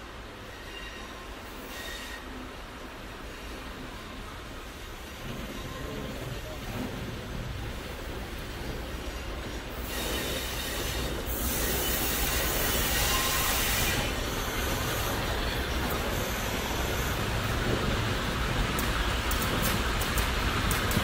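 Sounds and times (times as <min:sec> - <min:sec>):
diesel railcar engine rumble: 0:00.0 - 0:21.0
wheel squeal on track: 0:00.5 - 0:02.4, 0:09.8 - 0:17.3.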